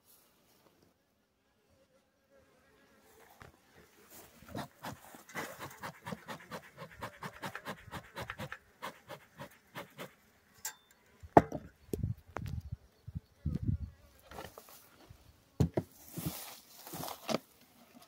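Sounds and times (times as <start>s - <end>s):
bellows puffing: 4.5s - 10.2s.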